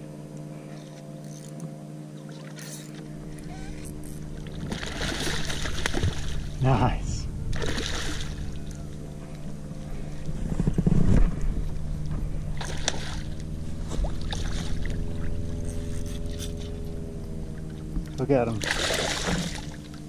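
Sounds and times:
steady low hum: 0:00.0 - 0:20.0
stingray splashing at the surface: 0:04.5 - 0:06.5, 0:07.5 - 0:08.4, 0:12.6 - 0:13.4, 0:18.5 - 0:19.8.

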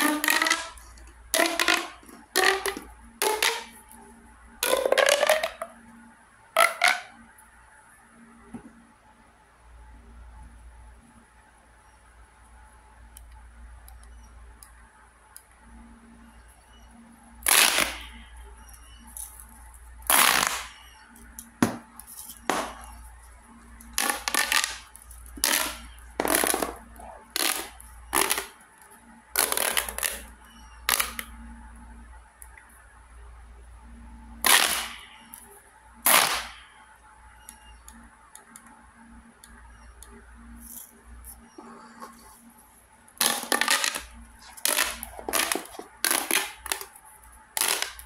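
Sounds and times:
plastic pop tube crackling pops: 0:00.0 - 0:03.8, 0:04.6 - 0:05.8, 0:06.6 - 0:07.2, 0:27.4 - 0:28.6, 0:43.2 - 0:47.0, 0:47.6 - 0:48.0.

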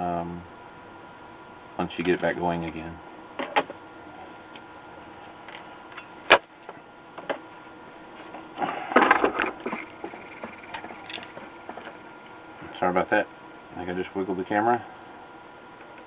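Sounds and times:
faint steady hum: 0:00.0 - 0:16.0
rustling and clatter: 0:08.2 - 0:12.0.

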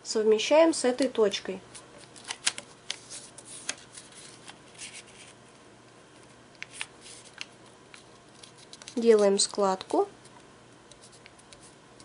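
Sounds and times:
paper rustling and crinkling: 0:01.7 - 0:05.4, 0:06.6 - 0:09.6.

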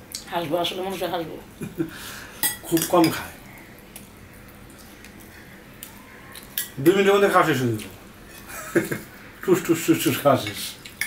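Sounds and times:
metal spoon clinking on dishes: 0:02.4 - 0:03.2, 0:06.5 - 0:06.8.

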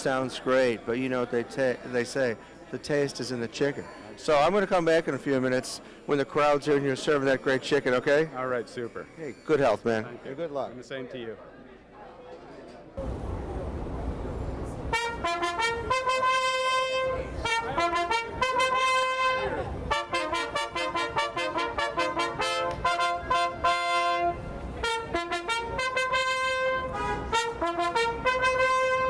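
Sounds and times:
trumpets playing in harmony: 0:14.9 - 0:29.0.

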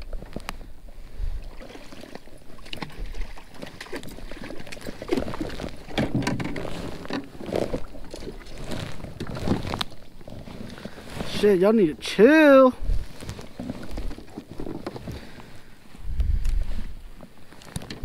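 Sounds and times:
wind buffeting microphone: 0:12.8 - 0:13.3, 0:16.0 - 0:17.1.

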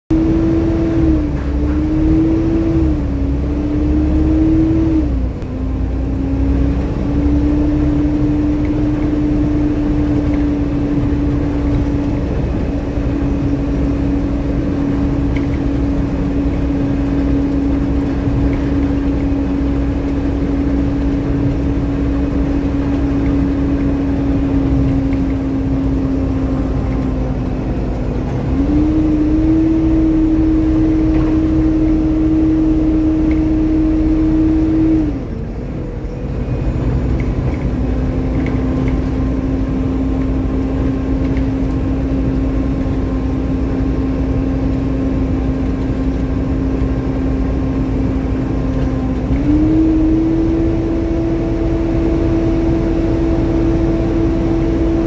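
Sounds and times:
diesel engine rumble: 0:00.1 - 0:55.0
engine cooling fan whine: 0:00.1 - 0:55.0.

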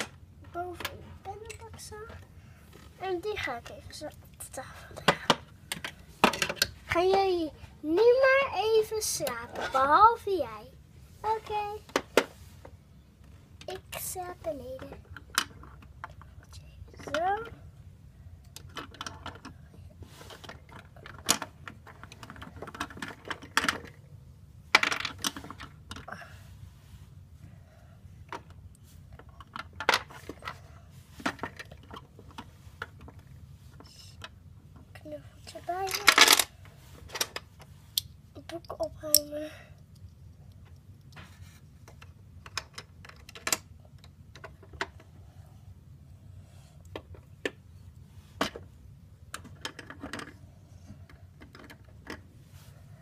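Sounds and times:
plastic toy clicks and knocks: 0:05.0 - 0:06.8, 0:18.5 - 0:19.6, 0:20.2 - 0:24.0, 0:24.7 - 0:26.1, 0:35.8 - 0:36.5, 0:37.1 - 0:39.3, 0:41.8 - 0:45.0, 0:49.3 - 0:50.4, 0:51.4 - 0:52.2
plastic toy figures clicking: 0:38.0 - 0:40.9.

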